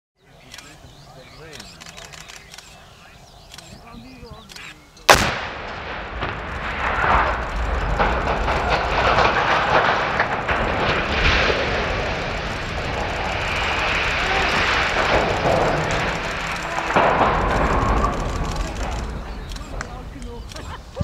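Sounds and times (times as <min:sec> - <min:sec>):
explosive blast: 0:05.1 - 0:19.8
long rumble of collapse: 0:05.1 - 0:21.0.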